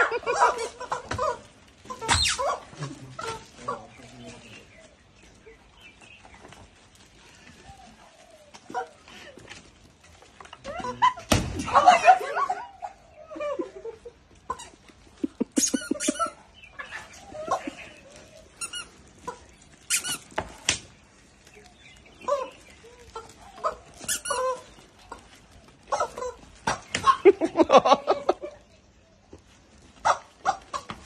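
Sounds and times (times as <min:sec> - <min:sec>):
rubber chicken toys squawking: 0:00.3 - 0:03.5, 0:15.5 - 0:17.8, 0:18.4 - 0:20.4, 0:22.2 - 0:25.2.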